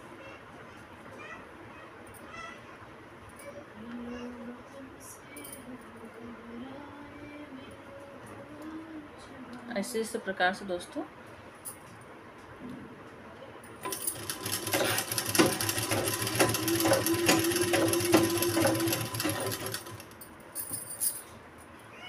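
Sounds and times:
sewing machine stitching: 13.8s - 20.2s.

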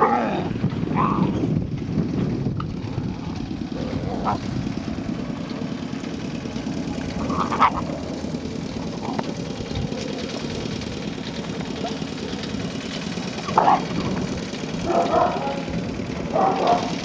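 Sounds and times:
puppies yelping: 0.0s - 1.5s, 3.1s - 4.8s, 6.7s - 17.0s
steady low rumble: 0.0s - 17.0s.

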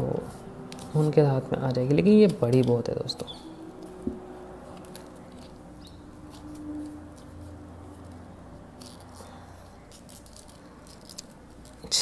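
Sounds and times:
watch strap clicks and rustling: 8.0s - 11.8s.

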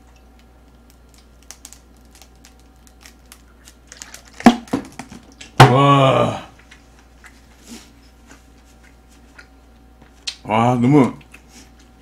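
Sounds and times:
plastic bottle crinkles: 0.7s - 5.5s.

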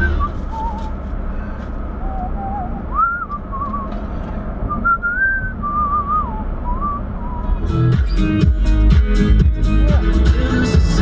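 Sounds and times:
car cabin road rumble: 0.0s - 11.0s
person whistling a tune: 2.0s - 3.9s, 4.7s - 7.5s.

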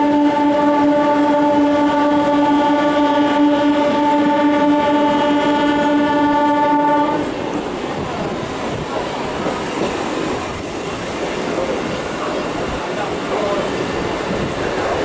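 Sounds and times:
train horn blast: 0.0s - 7.3s
moving train running noise: 0.0s - 15.0s.

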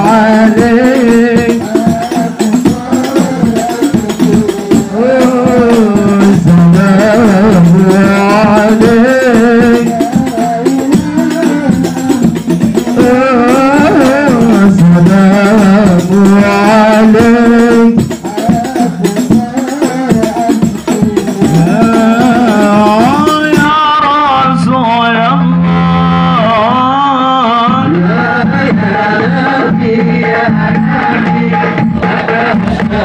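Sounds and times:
frame drum ensemble: 0.0s - 33.0s
men singing into microphones: 0.0s - 33.0s.

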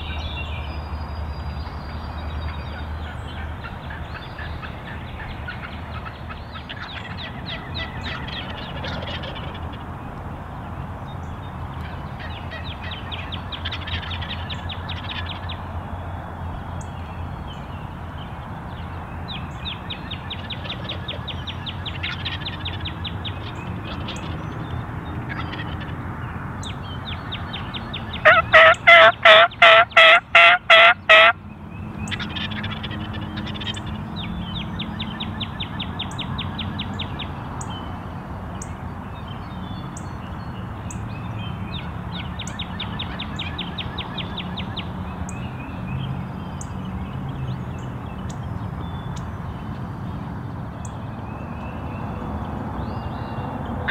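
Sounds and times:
turkey yelping: 28.2s - 31.4s.

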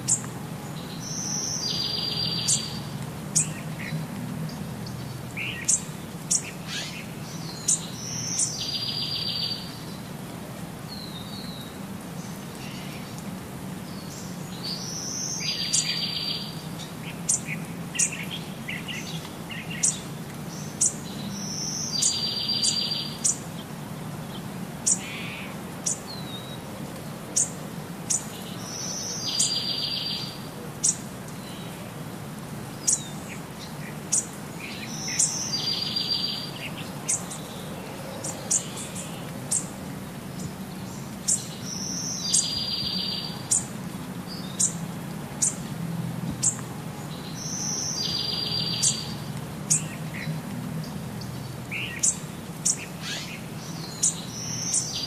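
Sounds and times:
birds chirping: 0.0s - 10.1s, 10.9s - 26.7s, 27.3s - 31.9s, 32.6s - 45.7s, 46.3s - 55.0s.

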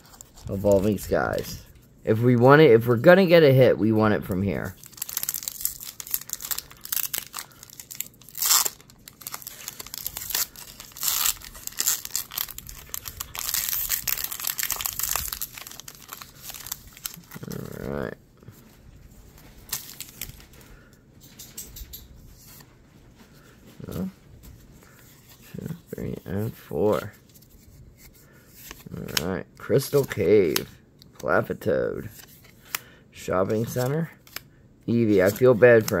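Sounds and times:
foil wrapper tearing and crinkling: 4.6s - 18.0s, 19.7s - 20.4s.

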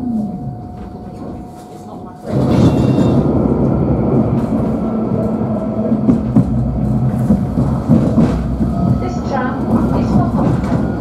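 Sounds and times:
tram wheels rumbling on rails: 0.0s - 11.0s.

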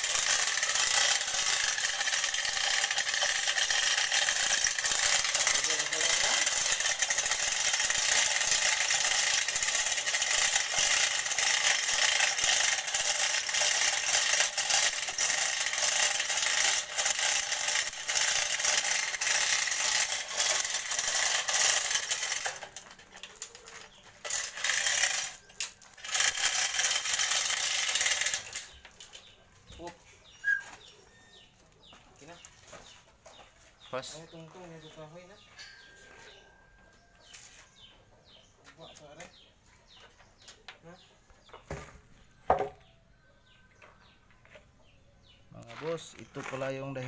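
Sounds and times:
chain hoist clicking rattle: 0.0s - 29.4s.

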